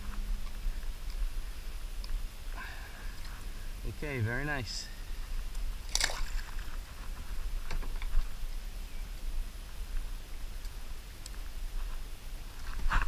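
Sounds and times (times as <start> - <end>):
steady low rumble: 0.0 - 12.6
water splashing around a kayak: 5.6 - 7.1
short splash: 5.9 - 6.5.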